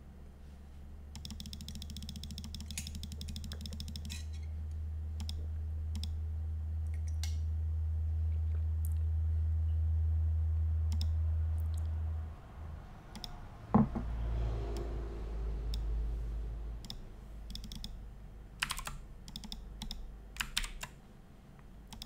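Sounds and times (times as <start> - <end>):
low steady hum: 0.0 - 22.0
keyboard and mouse clicks: 1.1 - 4.3, 5.2 - 6.2, 10.9 - 11.9, 13.1 - 13.4, 16.8 - 18.0, 18.6 - 21.0.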